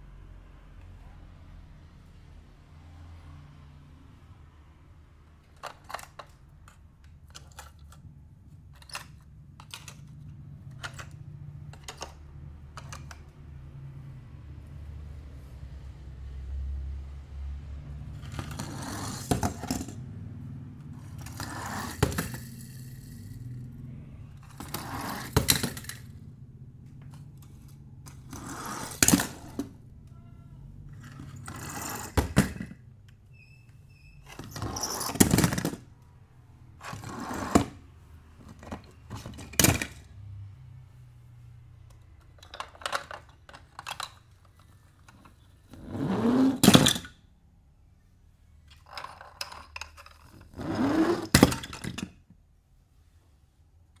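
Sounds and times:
toy cars rolling on board: 5.4 - 13.3, 18.1 - 20.0, 21.0 - 23.7, 24.4 - 26.2, 27.0 - 29.8, 30.9 - 32.8, 34.3 - 36.0, 36.8 - 37.8, 38.4 - 40.1, 41.9 - 47.2, 48.6 - 52.2
toy cars clattering into cardboard box: 18.2 - 20.0, 21.0 - 23.4, 24.4 - 26.1, 27.4 - 29.8, 31.0 - 32.8, 34.3 - 35.9, 38.5 - 40.1, 42.4 - 45.4, 46.5 - 47.2, 48.7 - 50.6, 51.2 - 52.3.

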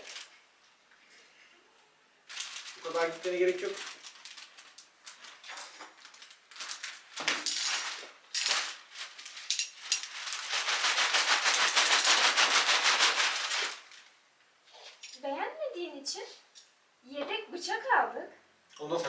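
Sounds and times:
plastic wrap crinkling: 0.0 - 0.6, 2.2 - 15.0.

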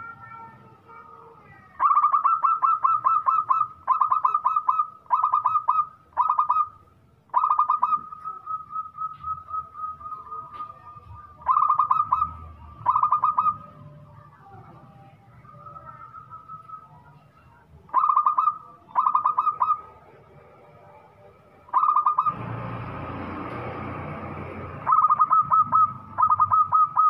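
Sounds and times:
dove cooing in staccato bursts: 1.8 - 8.4, 11.4 - 13.8, 17.9 - 20.0, 21.7 - 22.4, 24.8 - 27.0.

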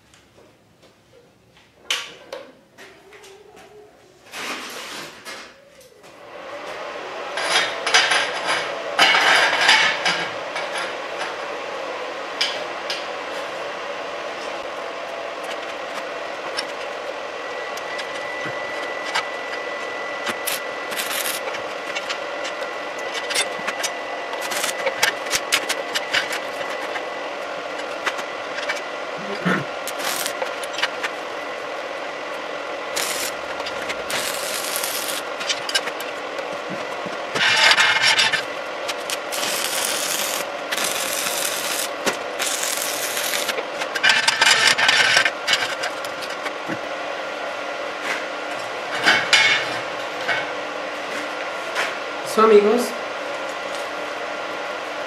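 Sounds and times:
welding arc crackling: 17.7 - 36.6, 37.2 - 46.4.

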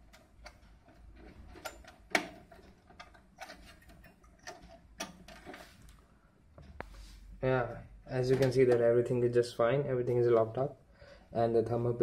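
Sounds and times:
clicks of parts inside computer case: 0.0 - 5.7, 8.2 - 8.9.

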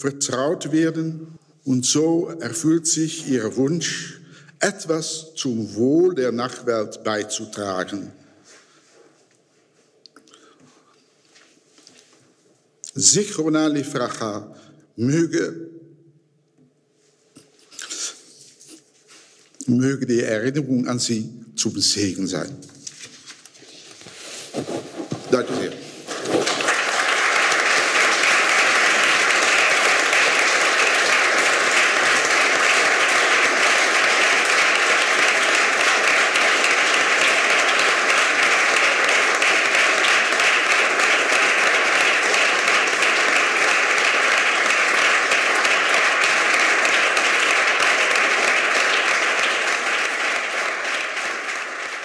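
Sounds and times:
audience applauding: 25.3 - 52.0.

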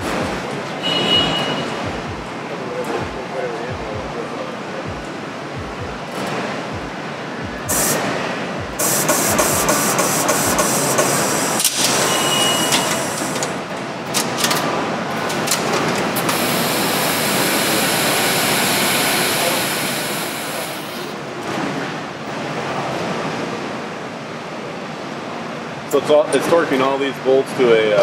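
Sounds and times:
mechanical whirring and hiss: 4.8 - 22.4.

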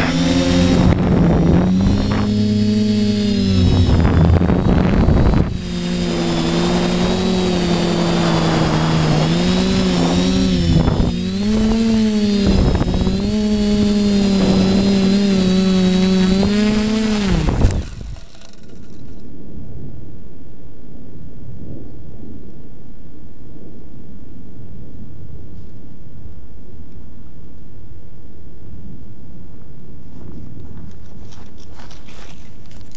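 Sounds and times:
drone motors whining: 0.0 - 19.4.

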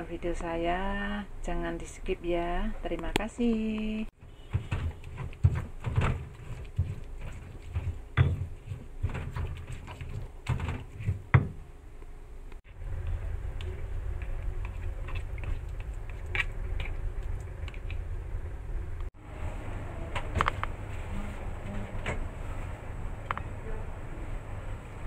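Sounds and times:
steady low hum: 0.0 - 25.0
stone pestle grinding in mortar: 4.6 - 11.2.

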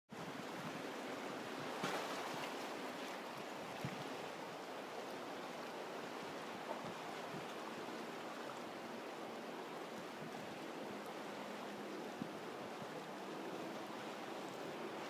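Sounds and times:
surf washing over rocks: 0.2 - 15.0.

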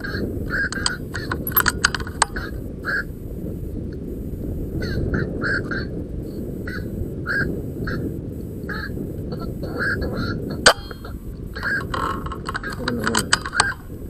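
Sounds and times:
herons giving hoarse calls: 0.0 - 3.2, 4.8 - 5.9, 6.6 - 8.1, 8.7 - 14.0
steady low rumble: 0.0 - 14.0.

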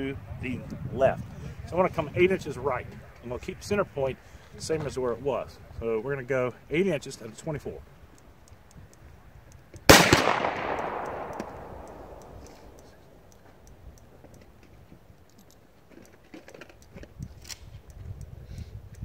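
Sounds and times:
faint scope turret clicks: 8.1 - 19.0
rifle shot echoing: 9.9 - 13.3.

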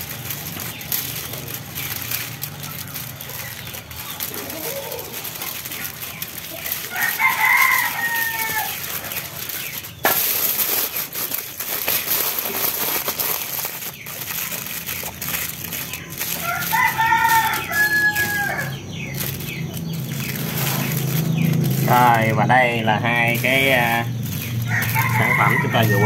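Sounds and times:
rooster crowing: 6.9 - 9.0, 16.2 - 18.9, 24.6 - 26.0.

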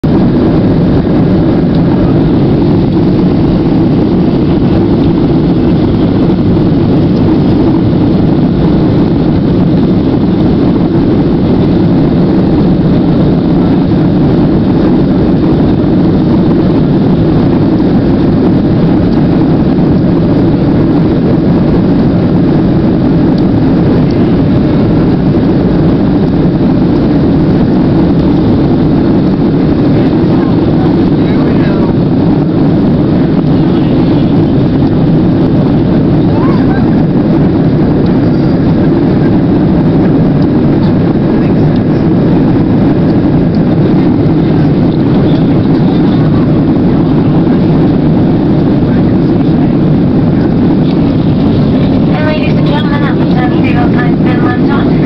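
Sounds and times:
jet engines from inside cabin: 0.0 - 55.0.

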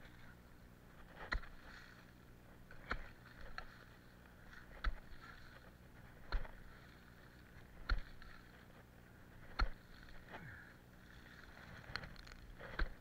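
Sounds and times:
garden tool striking leafy ground: 1.0 - 2.0, 2.6 - 10.4, 11.1 - 13.0.

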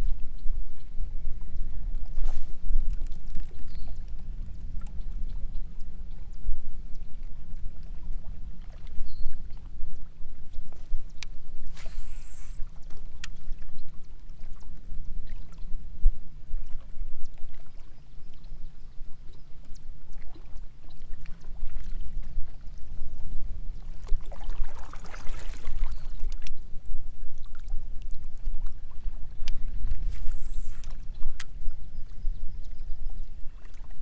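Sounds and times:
water lapping against a hull: 0.0 - 34.0
wind rumble on microphone: 0.0 - 34.0
water splashing: 23.9 - 26.5.

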